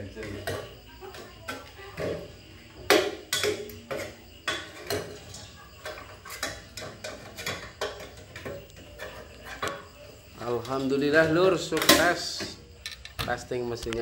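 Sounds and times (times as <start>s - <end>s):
popcorn kernels popping in metal pan: 2.9s - 13.2s.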